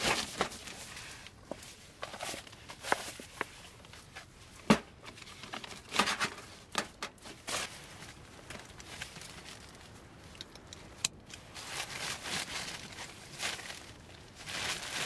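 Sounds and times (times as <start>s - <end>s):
plastic tarp crinkling: 0.0s - 4.2s, 5.1s - 10.5s, 11.4s - 15.0s.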